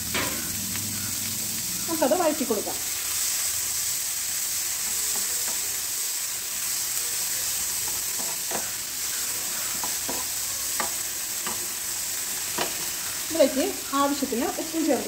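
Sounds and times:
vegetables sizzling in oil: 0.0s - 15.0s
spatula scraping and tapping pan: 7.9s - 8.8s, 9.6s - 11.7s, 12.5s - 13.0s.

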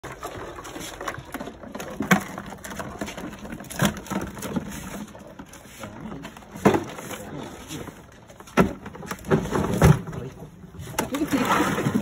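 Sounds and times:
crabs scrabbling in plastic tote: 0.0s - 12.0s.

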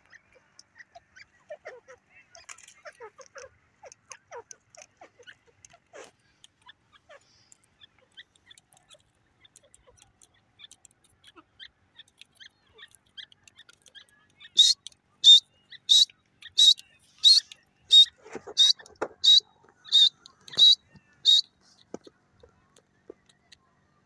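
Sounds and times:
birds clucking softly: 0.0s - 24.0s
loud shrill bird call: 14.5s - 21.5s.

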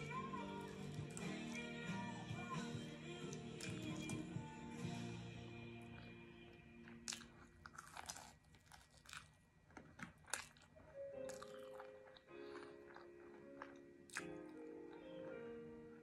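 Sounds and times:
soft background music: 0.0s - 7.4s, 10.8s - 16.0s
crunching fried onion rings: 6.8s - 15.0s.

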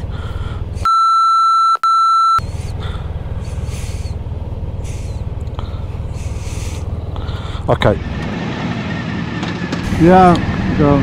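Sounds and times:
motorcycle idling: 0.0s - 0.8s, 2.4s - 11.0s
high censor bleeps: 0.8s - 2.4s.

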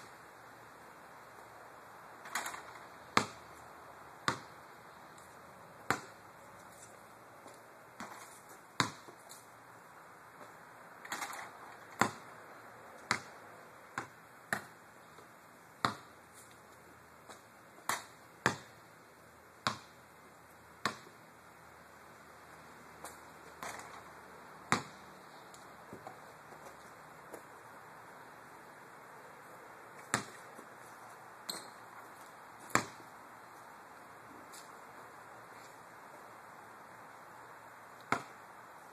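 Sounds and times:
basketball bouncing on concrete: 2.3s - 3.5s, 4.2s - 4.5s, 5.9s - 6.2s, 8.0s - 9.2s, 12.0s - 12.2s, 13.1s - 13.3s, 14.0s - 14.8s, 15.8s - 16.1s, 17.3s - 18.8s, 19.6s - 20.0s, 20.8s - 21.1s, 24.7s - 25.0s, 30.0s - 30.4s, 32.7s - 33.0s, 38.0s - 38.4s
basketball striking hoop: 8.8s - 9.1s, 12.0s - 12.2s, 24.7s - 25.0s, 30.1s - 30.4s, 32.7s - 33.0s.

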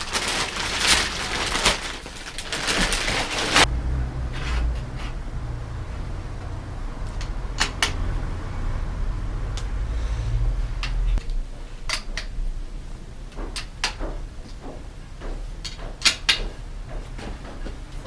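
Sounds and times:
low hum: 3.5s - 11.8s.

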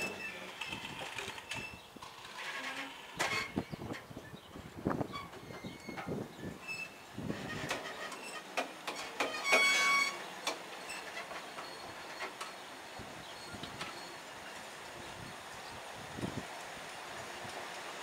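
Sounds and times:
train wheels clicking over rail joints: 0.0s - 18.0s
high-pitched wheel squeal: 9.2s - 10.2s.

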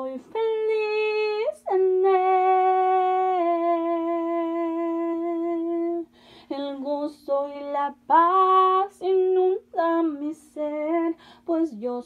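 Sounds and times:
woman singing a cappella: 0.0s - 12.0s
breath: 6.1s - 6.5s, 11.2s - 11.5s.

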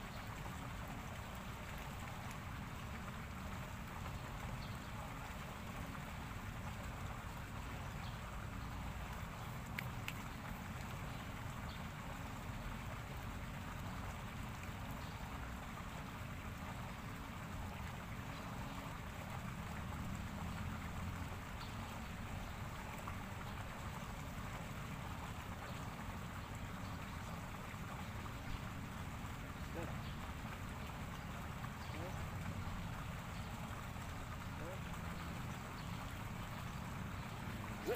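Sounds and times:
faint clicks: 9.6s - 10.9s.

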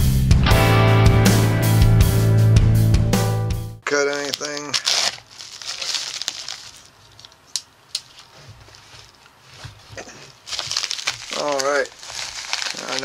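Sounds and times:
padded envelope crinkling: 3.9s - 13.0s.

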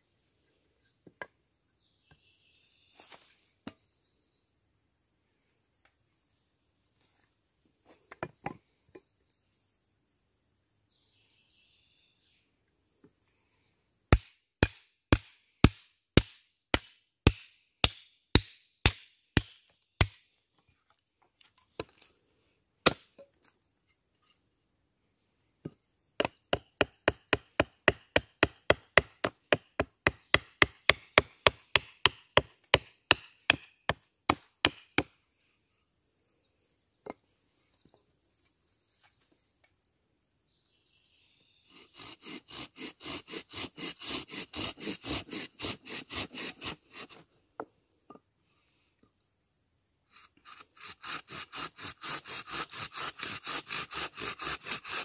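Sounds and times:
wood chopping strokes: 22.8s - 23.6s, 25.6s - 35.2s.

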